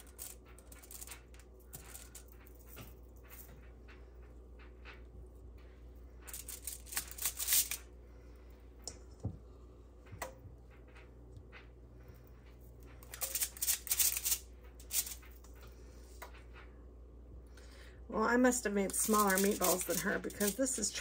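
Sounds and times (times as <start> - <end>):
rustling and scraping: 0.0 - 16.8.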